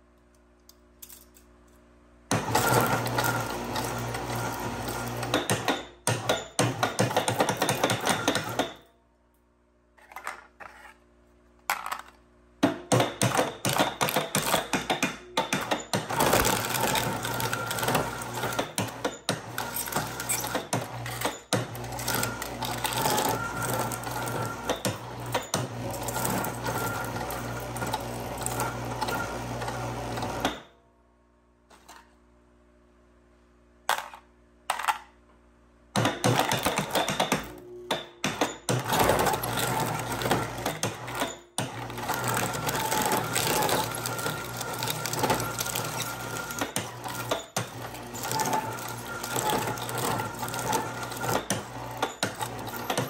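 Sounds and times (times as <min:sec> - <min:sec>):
shredder crunching metal can: 0:02.3 - 0:08.7, 0:12.8 - 0:30.6, 0:36.0 - 0:53.0.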